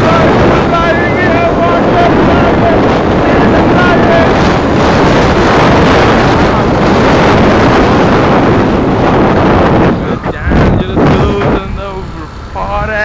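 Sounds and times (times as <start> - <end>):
road noise: 0.0 - 13.0
wind buffeting microphone: 0.0 - 13.0.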